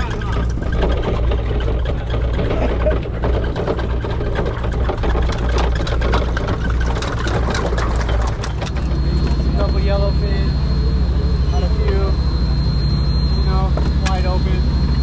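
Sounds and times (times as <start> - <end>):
sharp clicks and knocks: 0.0 - 9.4
boat engine humming: 0.0 - 15.0.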